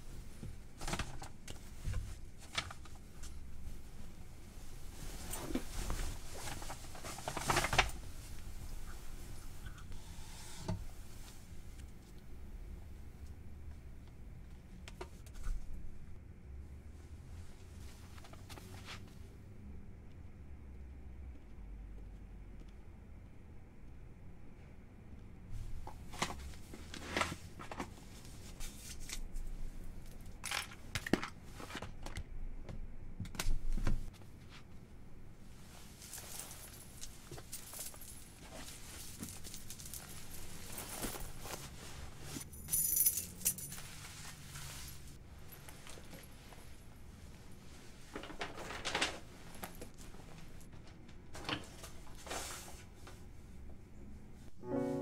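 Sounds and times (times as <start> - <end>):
rustling: 0.1 - 9.7, 35.5 - 52.9
dull rustle: 35.6 - 42.4.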